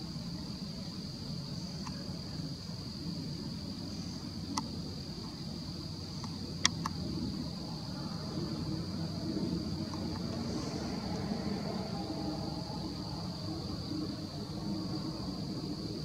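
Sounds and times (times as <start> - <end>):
high-pitched insect chorus: 0.0 - 16.0
low background rumble: 0.0 - 16.0
sharp clicks: 6.2 - 7.0.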